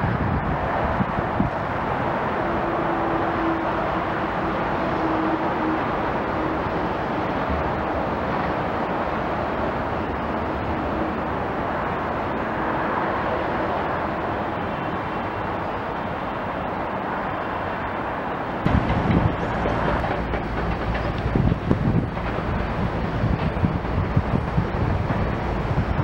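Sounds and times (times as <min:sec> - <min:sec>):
distant demolition machinery rumble: 0:18.6 - 0:26.0.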